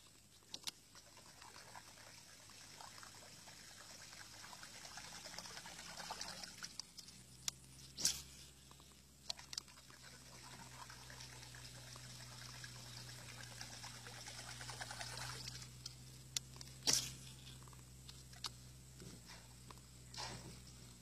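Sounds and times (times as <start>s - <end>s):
lure splashing on water surface: 9.2s - 15.8s.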